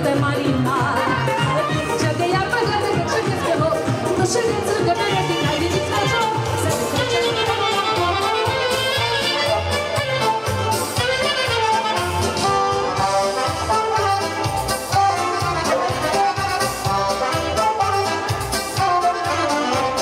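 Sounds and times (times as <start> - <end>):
accordion: 0.0 - 20.0
folk dance music: 0.0 - 20.0
brass: 4.8 - 20.0.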